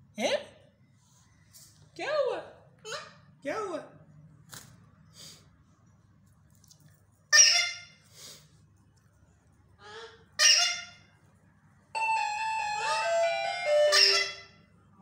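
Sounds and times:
parakeets squawking: 0:12.7 - 0:14.5.

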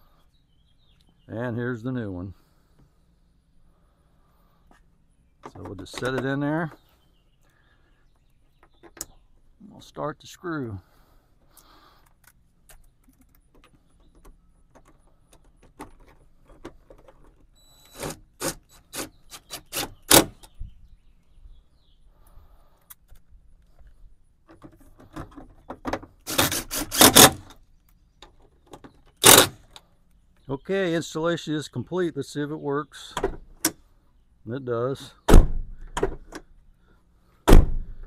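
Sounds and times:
hand tools clicking on screws: 0:26.3 - 0:27.5, 0:29.2 - 0:29.6.

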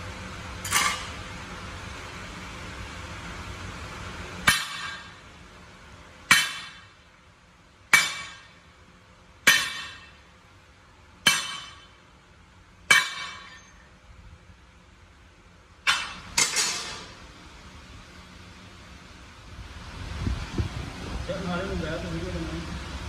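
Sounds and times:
hammer striking steel: 0:00.6 - 0:01.2, 0:04.4 - 0:05.2, 0:06.3 - 0:07.0, 0:07.9 - 0:08.6, 0:09.4 - 0:10.2, 0:11.2 - 0:12.0, 0:12.9 - 0:13.9, 0:15.8 - 0:17.2.

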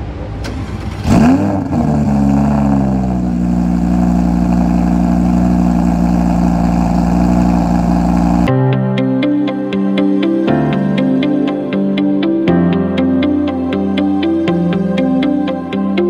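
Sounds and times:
car engine idling: 0:00.1 - 0:08.5
car engine starting and revving: 0:00.2 - 0:08.5.

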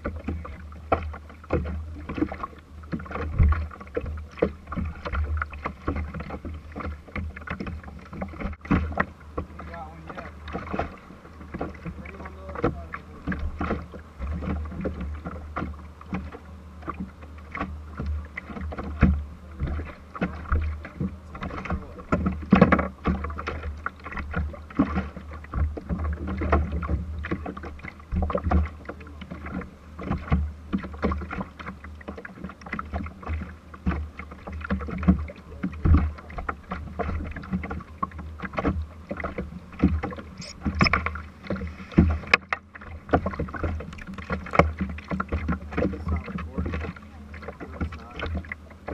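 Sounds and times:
knocks and thumps on boat deck: 0:00.0 - 0:48.9
low rumble of hull on water: 0:00.0 - 0:48.9
short high squeak: 0:40.4 - 0:41.0.

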